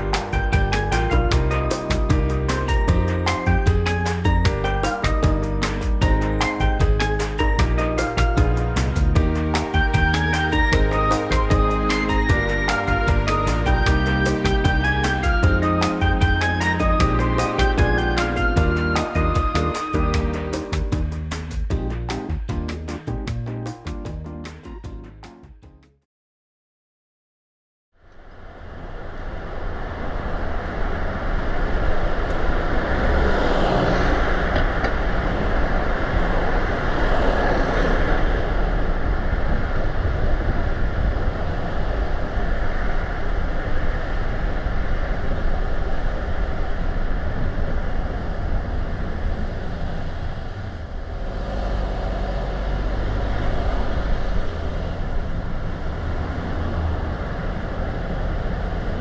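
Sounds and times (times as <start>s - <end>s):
low engine rumble: 28.1s - 59.0s
tyre and road noise: 28.2s - 59.0s.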